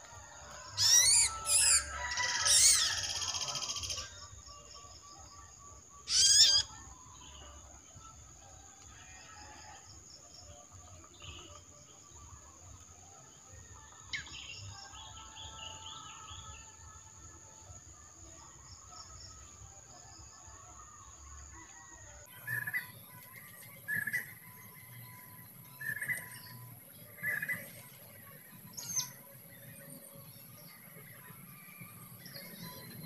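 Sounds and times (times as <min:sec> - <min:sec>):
high insect whine: 0:00.5 - 0:07.4.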